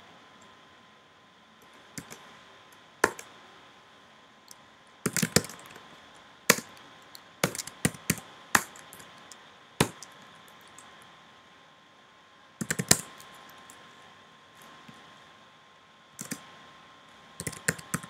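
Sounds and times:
typing on computer keyboard: 0:05.1 - 0:05.8, 0:06.5 - 0:06.7, 0:07.4 - 0:09.1, 0:12.6 - 0:13.6, 0:16.2 - 0:16.4, 0:17.4 - 0:18.0.

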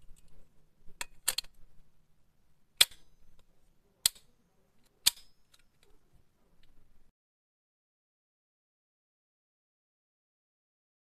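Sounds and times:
plastic buckles clicking: 0:01.0 - 0:01.6, 0:02.8 - 0:06.0.

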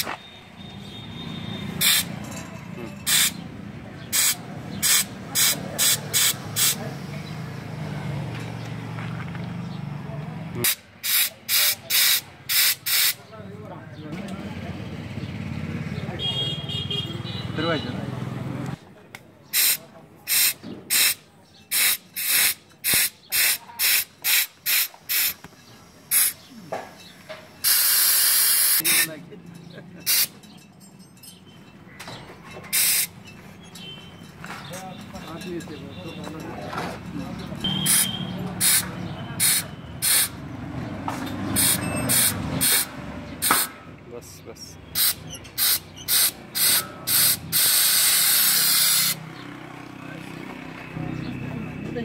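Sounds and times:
compressed air hissing: 0:01.6 - 0:02.2, 0:03.0 - 0:03.4, 0:04.1 - 0:07.2, 0:10.6 - 0:13.2, 0:19.5 - 0:29.1, 0:30.0 - 0:30.3, 0:32.7 - 0:33.2, 0:37.8 - 0:40.4, 0:41.5 - 0:43.8, 0:44.9 - 0:49.2.

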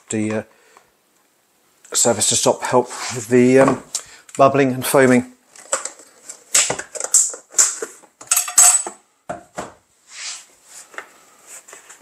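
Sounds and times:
metal utensils clinking and scraping: 0:08.3 - 0:08.9.

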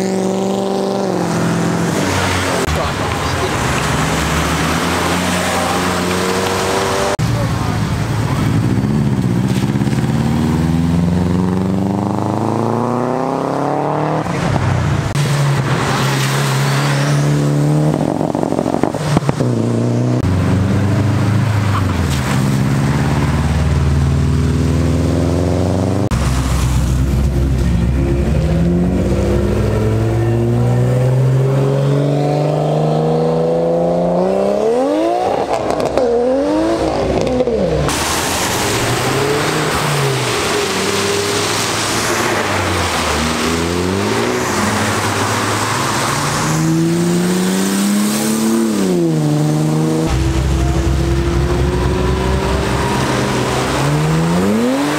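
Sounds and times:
engine revving up and down: 0:00.0 - 0:07.5, 0:08.2 - 0:54.9
car engines accelerating: 0:00.0 - 0:54.9.

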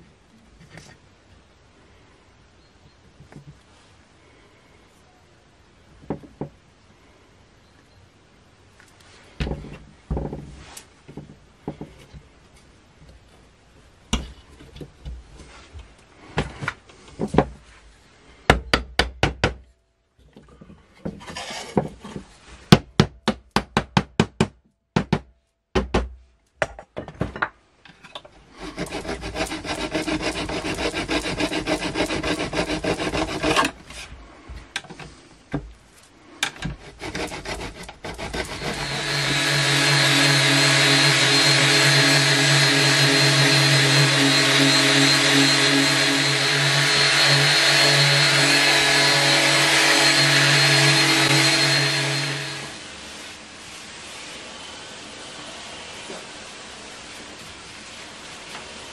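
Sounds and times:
electric sander running: 0:28.8 - 0:33.6, 0:36.8 - 0:53.0.

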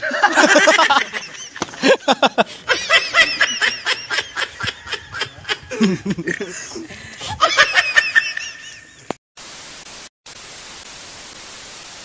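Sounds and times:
men laughing: 0:00.0 - 0:09.2.

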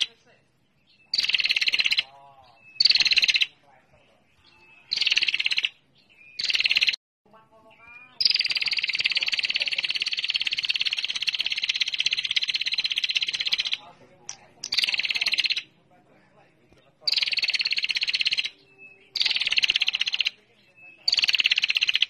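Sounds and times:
bird rapid ticking call: 0:00.9 - 0:03.6, 0:04.4 - 0:07.0, 0:07.8 - 0:15.8, 0:16.8 - 0:22.0.

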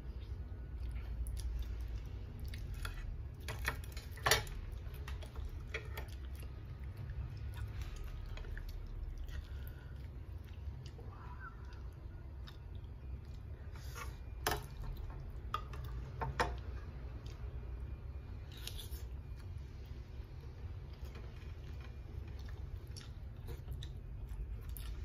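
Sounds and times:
steady low hum: 0:00.0 - 0:25.0
chewing and lip smacking: 0:04.9 - 0:13.6, 0:22.2 - 0:25.0.

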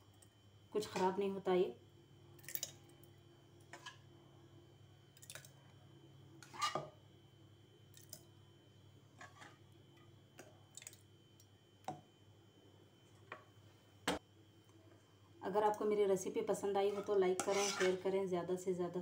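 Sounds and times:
spoon scraping ceramic jar: 0:16.8 - 0:18.0.

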